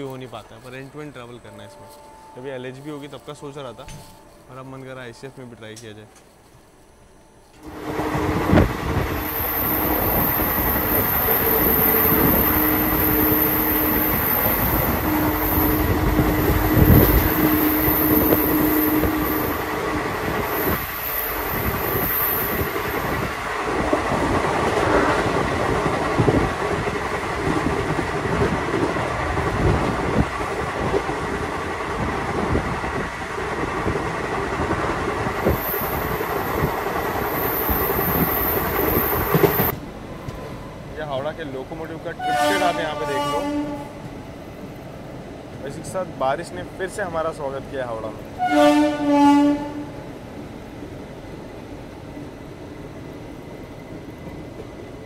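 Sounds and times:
train wheels rumbling: 7.5s - 55.0s
clickety-clack over rail joints: 21.5s - 40.5s.

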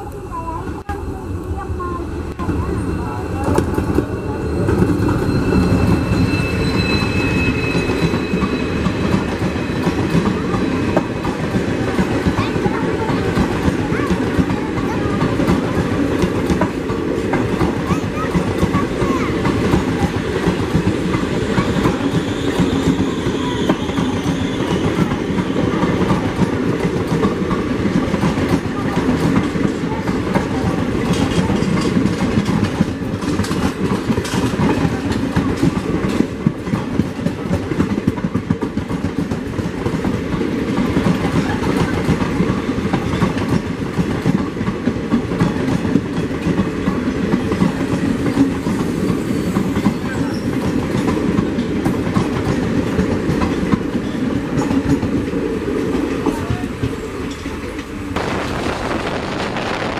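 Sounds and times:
train wheels clattering over rail joints: 7.8s - 59.9s.

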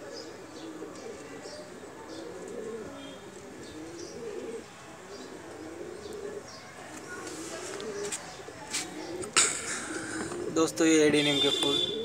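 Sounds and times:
doves cooing: 0.0s - 11.1s
small birds chirping: 0.0s - 12.0s.

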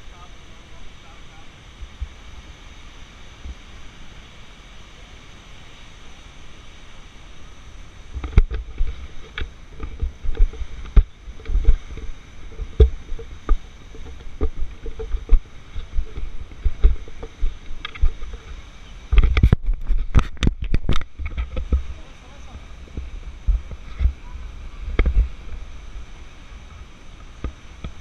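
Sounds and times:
steady rushing background: 7.2s - 26.1s
camera bumping against clothing: 8.2s - 21.9s
footsteps on wooden bridge: 8.2s - 22.0s.

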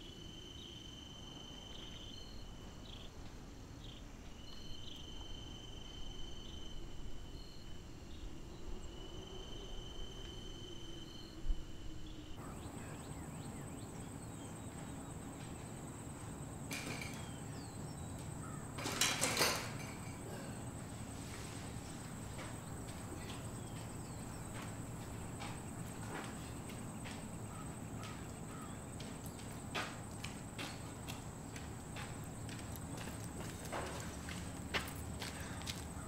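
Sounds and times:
crickets trilling: 0.0s - 36.0s
steady high-pitched whine: 0.0s - 36.0s
light footsteps: 12.4s - 18.4s, 20.6s - 36.0s.

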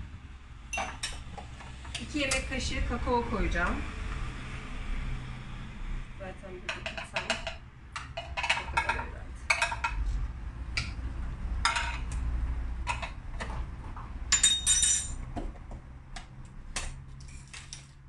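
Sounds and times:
spoon clinking on pot: 0.7s - 1.2s.

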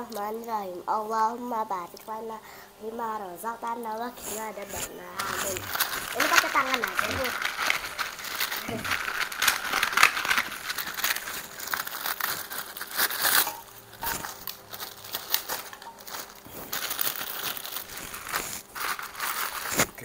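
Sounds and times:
plastic bag crinkling: 4.0s - 20.0s
crackers breaking: 4.2s - 20.0s.

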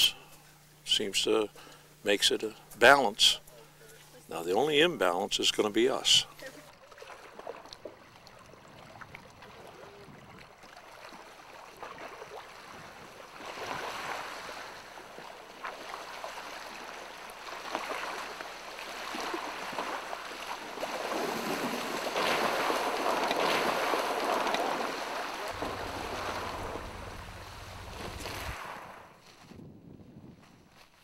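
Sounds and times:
waves splashing on pebble shore: 15.8s - 29.0s.

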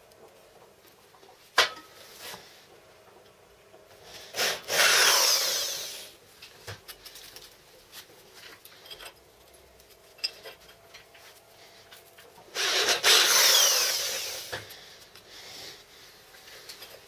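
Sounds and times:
electric drill drilling into steel: 4.3s - 6.2s, 12.5s - 14.6s.

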